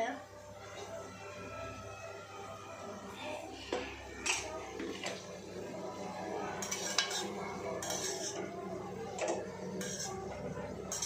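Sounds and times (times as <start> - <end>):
metal spatula scraping a pan: 6.6 - 8.5, 9.2 - 11.0.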